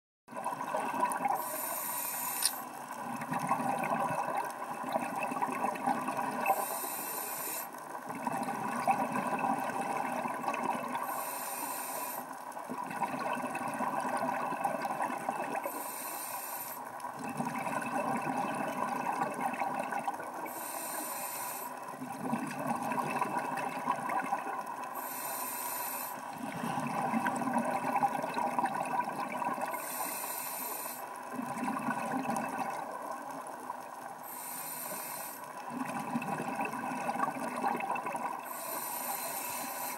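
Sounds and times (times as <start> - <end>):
exhaled bubbles rushing: 0.3 - 1.4, 2.9 - 6.5, 8.1 - 11.0, 12.7 - 15.6, 17.2 - 20.4, 22.0 - 24.7, 26.4 - 29.8, 31.3 - 33.5, 35.7 - 38.4
regulator air hiss: 1.4 - 2.7, 6.5 - 7.8, 11.0 - 12.3, 15.7 - 16.8, 20.5 - 21.8, 25.0 - 26.3, 29.8 - 31.1, 34.2 - 35.5, 38.4 - 39.9.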